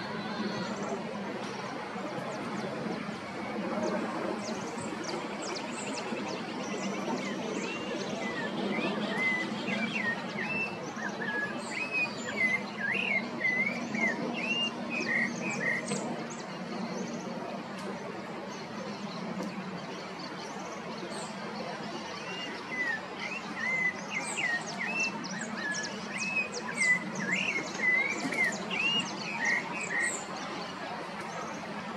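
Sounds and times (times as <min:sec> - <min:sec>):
thrush singing whistled notes: 0:05.4 - 0:16.0, 0:22.2 - 0:30.4.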